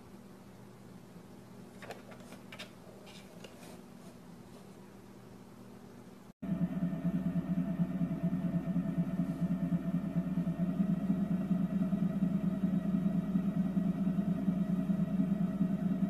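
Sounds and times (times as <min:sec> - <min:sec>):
vibration plate buzzing hum: 0:06.4 - 0:16.0.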